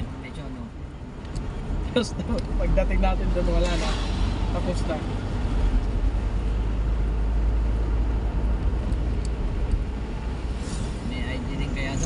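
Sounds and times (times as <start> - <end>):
car engine and road noise: 0.0 - 12.0.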